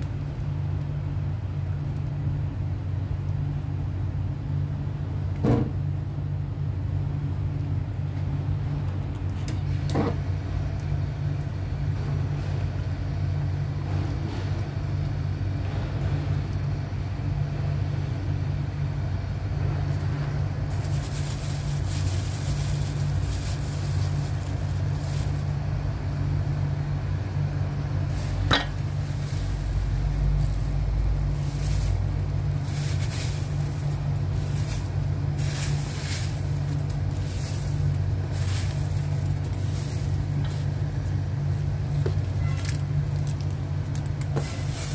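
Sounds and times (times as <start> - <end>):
steady low hum: 0.0 - 44.9
soft irregular crackling: 20.7 - 26.2, 28.0 - 44.9.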